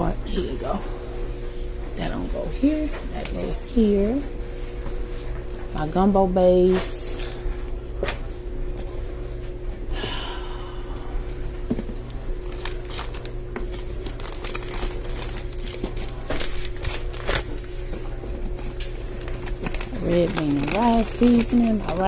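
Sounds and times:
plastic packets crinkling: 12.4 - 17.6, 18.8 - 22.0.

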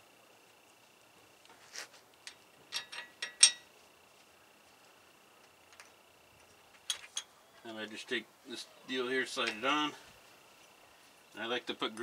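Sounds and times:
metal clicks and clinks: 2.2 - 3.7.

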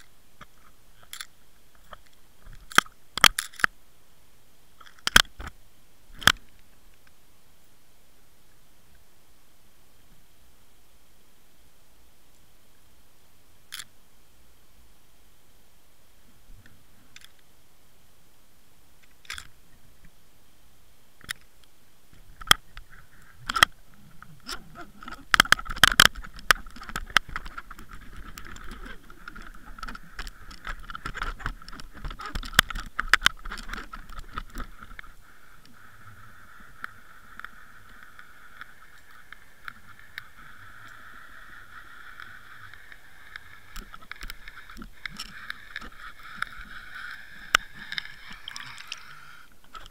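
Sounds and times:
steady hiss: 0.0 - 49.9
muffled underwater knocks and clicks: 22.2 - 35.2.

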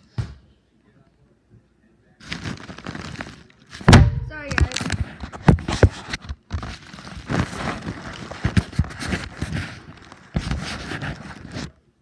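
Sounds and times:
phone microphone rubbing on clothing: 4.6 - 11.8.

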